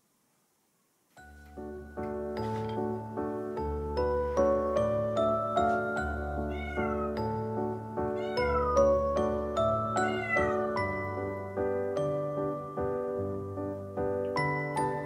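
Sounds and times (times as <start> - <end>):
gently plucked background music: 1.2 - 15.0
cat meowing: 5.8 - 7.4, 8.0 - 9.2, 9.8 - 11.1.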